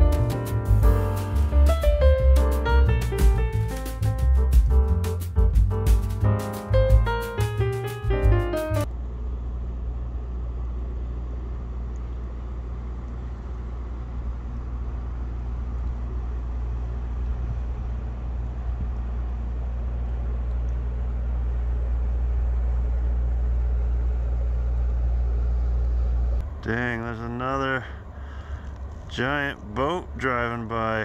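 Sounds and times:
boat engine droning: 8.3s - 31.0s.

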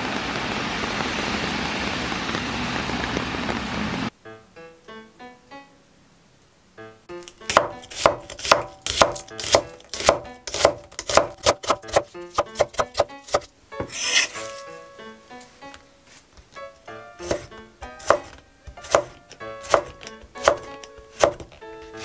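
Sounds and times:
soft music: 4.1s - 22.0s
knife chopping on wooden board: 7.2s - 14.5s, 17.2s - 22.0s
knife scraping cutting board: 7.2s - 14.8s, 17.2s - 22.0s.

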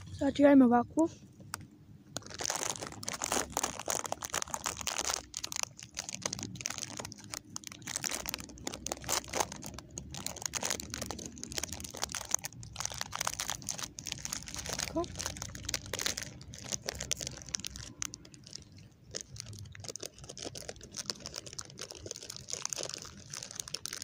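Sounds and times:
plastic packaging crinkling: 2.2s - 24.0s.

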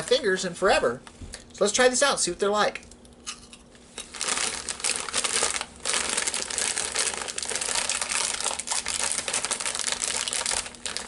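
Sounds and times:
plastic crisp bag crinkling: 3.3s - 11.0s.

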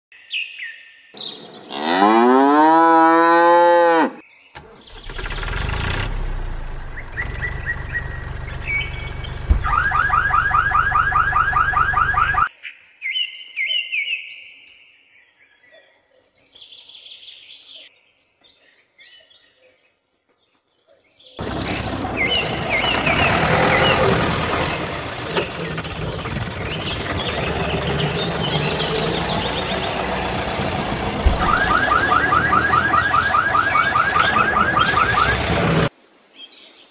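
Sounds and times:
cow mooing: 1.7s - 4.2s
loud mechanical running noise: 4.9s - 11.2s, 21.4s - 35.9s.

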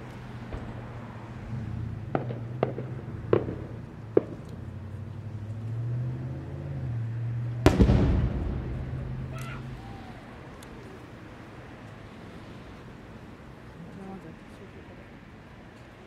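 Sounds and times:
firework cracks: 0.2s - 4.6s, 7.6s - 11.9s
heavy firework boom: 7.6s - 10.5s.

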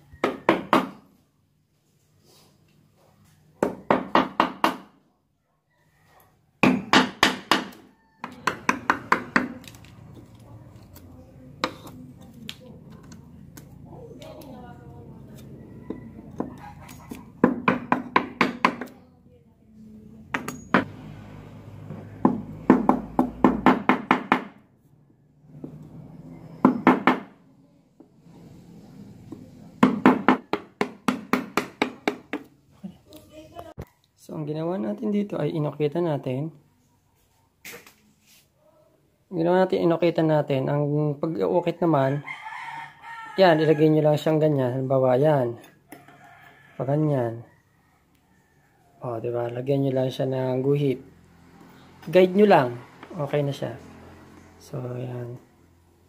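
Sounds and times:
hammer striking wood chisel: 0.2s - 1.0s, 3.6s - 5.0s, 6.6s - 9.7s, 17.1s - 19.0s, 20.3s - 20.9s, 22.2s - 24.6s, 26.6s - 27.3s, 29.8s - 32.5s.

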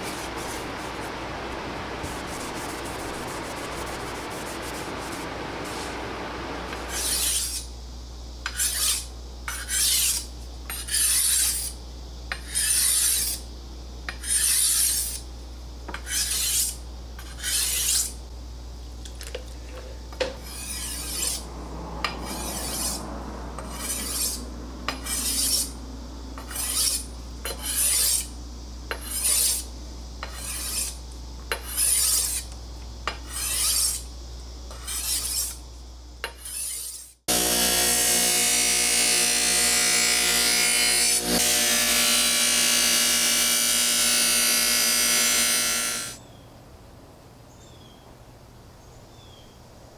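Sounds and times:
knife scraping on sharpening stone: 8.5s - 11.7s, 12.3s - 13.4s, 14.1s - 15.2s, 15.9s - 18.1s, 20.3s - 21.4s, 23.6s - 25.7s, 26.4s - 28.3s, 28.9s - 29.6s, 30.2s - 32.5s, 33.2s - 34.0s, 34.7s - 35.6s, 36.2s - 37.2s
low hum: 18.3s - 27.5s.

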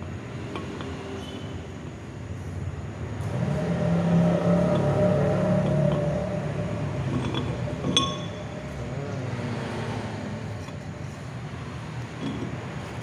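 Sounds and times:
vehicle engine hum: 0.0s - 13.0s
sharp metallic clink: 7.2s - 8.6s.

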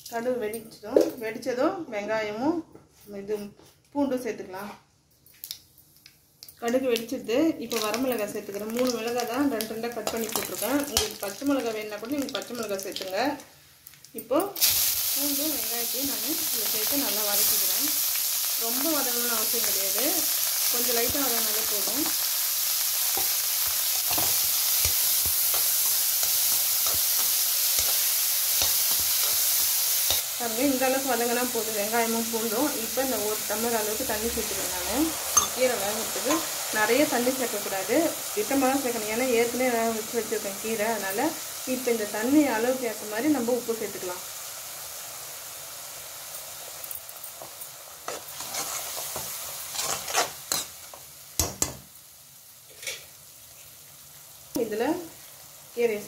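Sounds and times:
food sizzling in hot oil: 6.9s - 56.0s
spatula scraping and tapping pan: 47.4s - 51.8s.

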